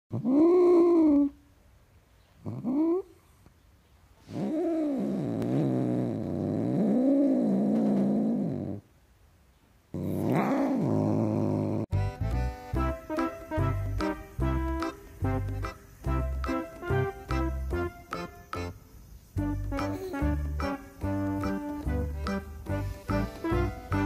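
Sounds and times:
cat growling yowl: 4.2 - 8.8, 9.9 - 11.9
music: 11.9 - 24.0.

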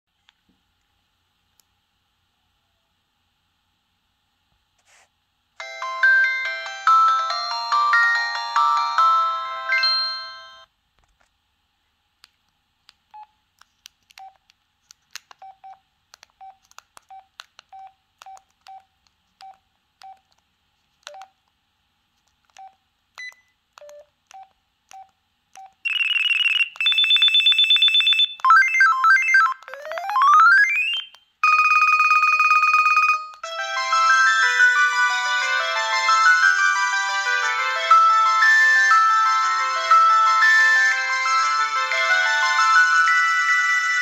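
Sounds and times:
phone key beeps: 21.1 - 21.3, 22.5 - 33.4
electronic ring tones: 25.8 - 39.2
phone power-up melody: 25.9 - 44.0.

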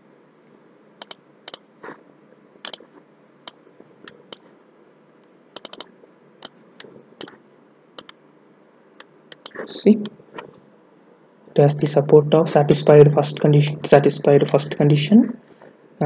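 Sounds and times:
faint steady hiss: 0.0 - 16.0
sharp computer clicks: 1.0 - 1.7, 2.6 - 4.5, 5.6 - 7.4, 8.0 - 8.2, 9.0 - 10.5.

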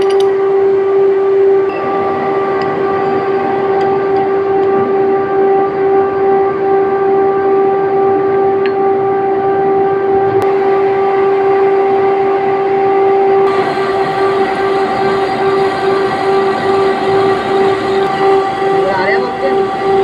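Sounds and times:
machinery whine: 0.0 - 20.0
mechanical noise: 13.4 - 20.0.

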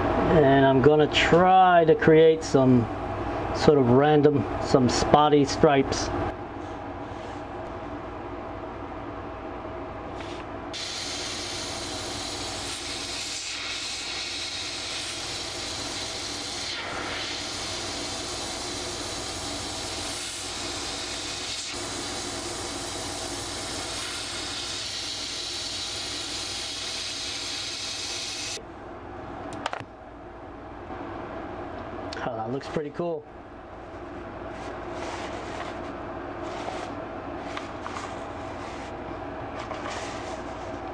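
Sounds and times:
low steady hum: 0.0 - 27.0, 28.6 - 40.9
airbrush hissing: 10.2 - 28.6.

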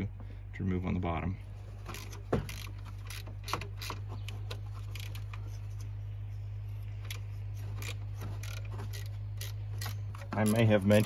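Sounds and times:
steady low hum: 0.0 - 11.0
ratchet wrench clicking: 1.9 - 5.5, 7.0 - 11.0.

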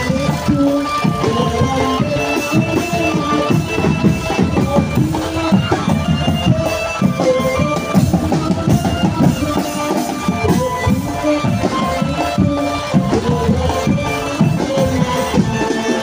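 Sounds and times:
drums and bass drum beat: 0.0 - 16.0
melody of held notes: 0.0 - 16.0.

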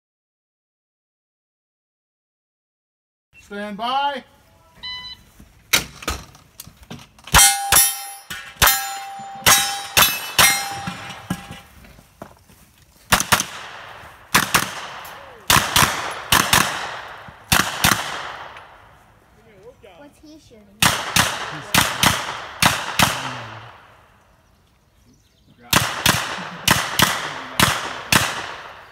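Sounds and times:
steel targets ringing: 7.3 - 11.7
rapid gunshots: 13.1 - 18.6, 20.8 - 23.9, 25.7 - 28.9.

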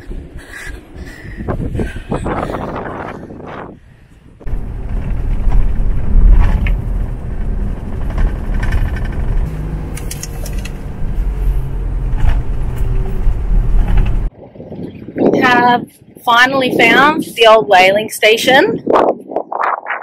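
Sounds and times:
vehicle engine and tyres rumbling: 0.0 - 17.4
rattles and knocks: 4.5 - 9.5, 12.0 - 14.3.

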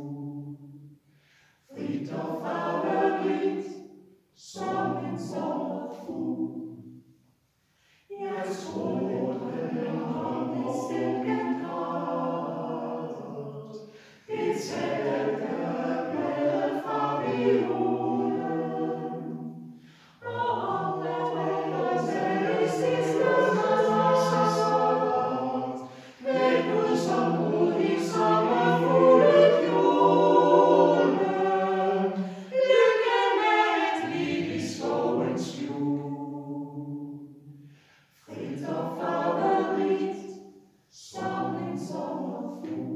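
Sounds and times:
mixed choir singing a cappella: 0.0 - 0.9, 1.5 - 7.0, 8.0 - 42.9.

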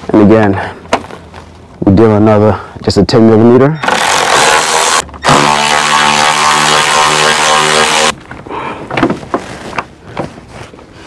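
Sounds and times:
electric ratchet motor whine: 3.8 - 8.1.

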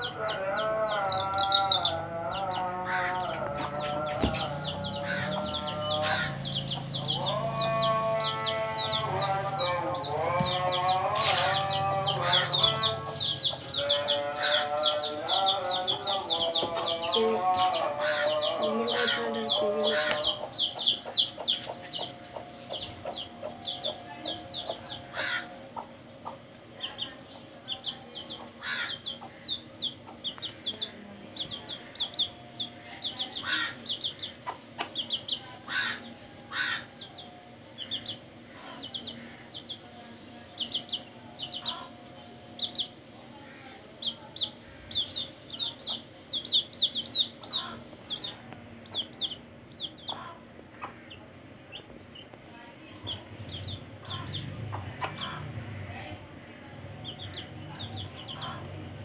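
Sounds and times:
chicks peeping: 0.0 - 52.4, 53.0 - 55.8, 56.5 - 59.0
hen clucking: 0.0 - 52.4, 53.0 - 55.6.

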